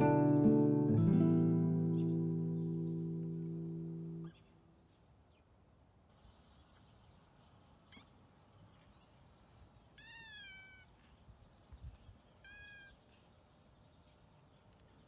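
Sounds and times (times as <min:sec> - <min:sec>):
cat chirp: 0:10.0 - 0:11.0, 0:12.4 - 0:13.1
cat meowing softly: 0:10.0 - 0:11.0, 0:12.3 - 0:13.2.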